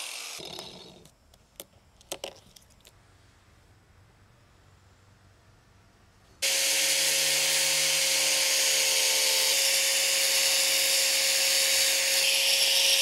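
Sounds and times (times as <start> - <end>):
angle grinder whining: 0.0 - 1.1, 6.4 - 13.0.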